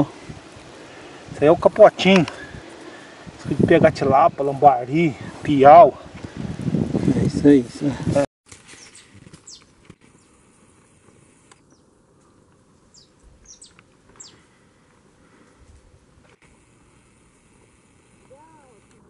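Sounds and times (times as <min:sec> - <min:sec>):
faint bird chirps: 0:12.9 - 0:14.5.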